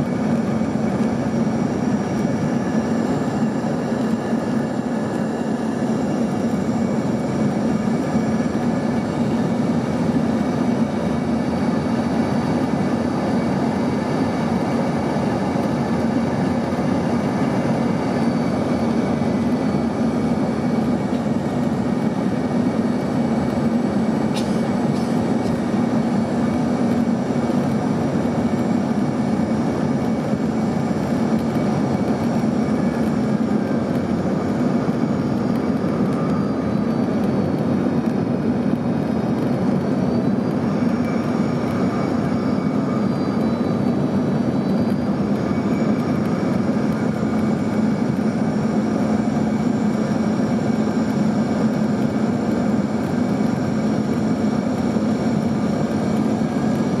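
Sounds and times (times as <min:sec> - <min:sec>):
jet engines humming: 0:00.0 - 0:57.0.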